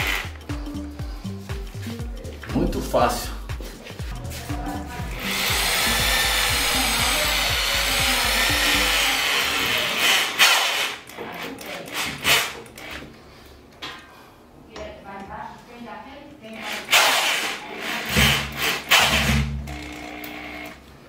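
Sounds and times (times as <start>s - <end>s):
power tool motor whining: 5.1s - 11.0s, 16.6s - 20.8s
screw driven through metal: 5.2s - 11.1s, 16.6s - 19.4s.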